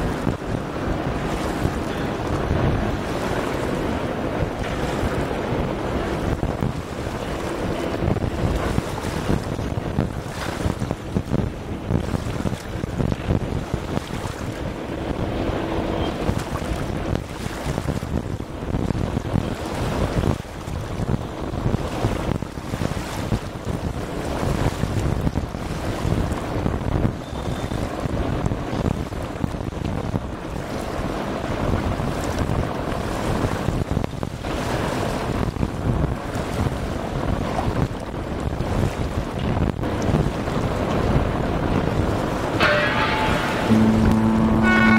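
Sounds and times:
tugboat engine rumble: 0.0 - 44.9
water rushing against ship hull: 0.0 - 44.9
wind buffeting microphone: 0.0 - 44.9
uneven low rumble: 42.6 - 44.9.

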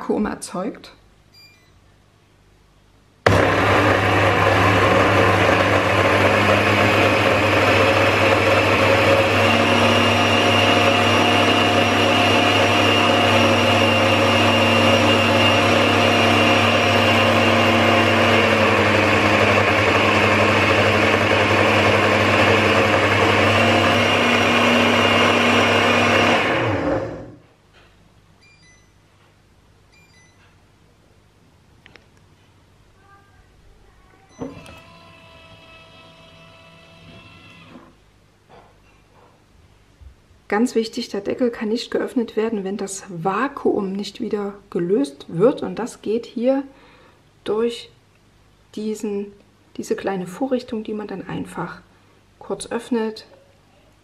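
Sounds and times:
blender motor running: 3.3 - 27.4, 34.4 - 38.0.

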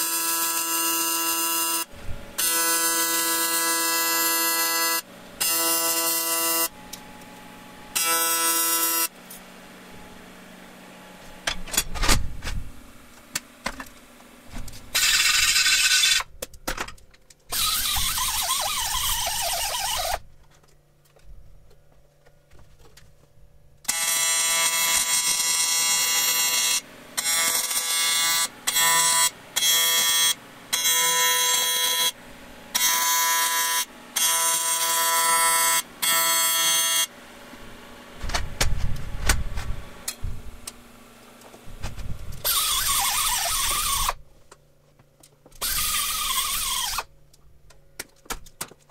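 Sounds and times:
welding arc buzzing: 0.0 - 7.2, 7.8 - 10.1, 14.7 - 16.3, 17.5 - 20.3, 23.8 - 40.8, 41.6 - 44.2, 45.6 - 47.1.

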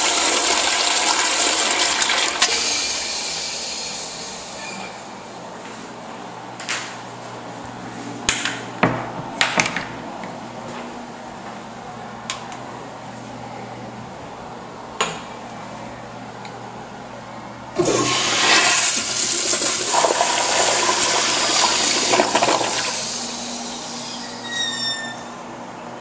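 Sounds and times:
toilet flushing water rush: 0.0 - 4.6, 17.8 - 24.2
rising whistle: 23.5 - 25.4.

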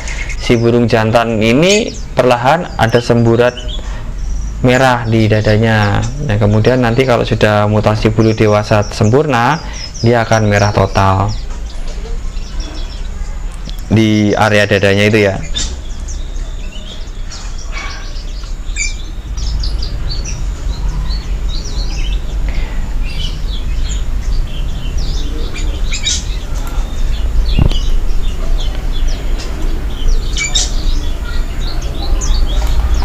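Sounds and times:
small birds chirping: 0.0 - 33.0
steady low rumble: 15.7 - 33.0.

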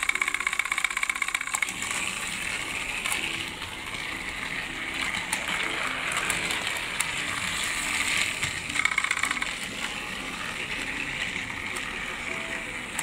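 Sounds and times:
rapid clicks: 0.0 - 3.6, 8.1 - 9.9
toy train motor whirring: 0.0 - 13.0
wheels rattling over rails: 0.0 - 13.0.

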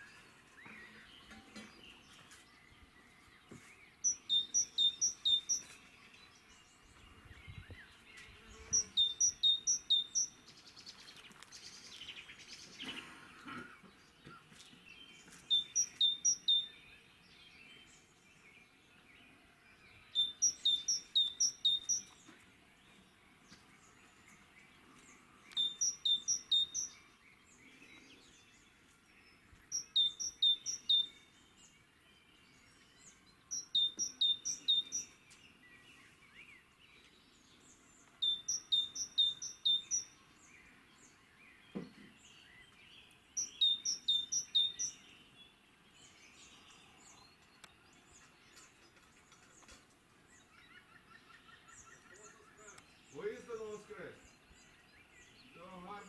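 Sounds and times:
songbird singing high notes: 4.0 - 5.8, 8.4 - 10.4, 15.5 - 16.8, 20.0 - 22.2, 25.4 - 27.1, 29.7 - 31.3, 33.5 - 35.2, 38.2 - 40.2, 43.4 - 45.1.

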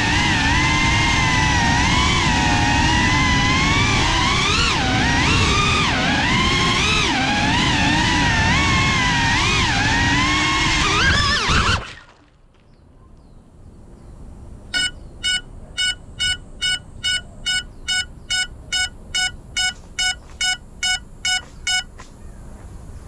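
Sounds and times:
drone motor whirring: 0.0 - 11.7, 14.8 - 21.8
short alarm beeps: 14.7 - 22.0.

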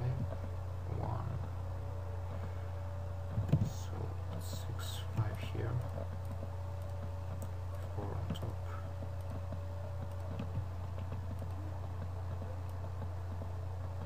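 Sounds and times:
faint whine: 0.0 - 14.0
low electrical hum: 0.0 - 14.0.

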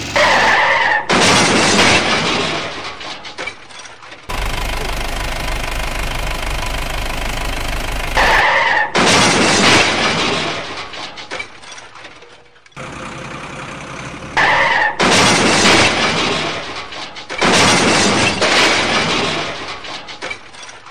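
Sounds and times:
loud crash with breaking: 0.2 - 5.7, 8.1 - 12.0, 14.4 - 20.9
truck engine running: 4.3 - 8.5, 12.8 - 14.4.

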